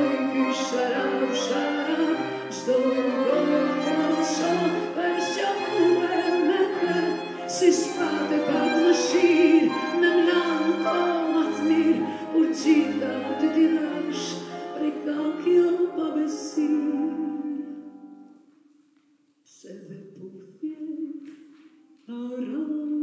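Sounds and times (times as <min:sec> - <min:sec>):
strings playing: 0:00.0 - 0:18.1
woman singing: 0:00.0 - 0:18.2, 0:19.5 - 0:21.3, 0:22.0 - 0:23.0
piano: 0:00.0 - 0:18.9.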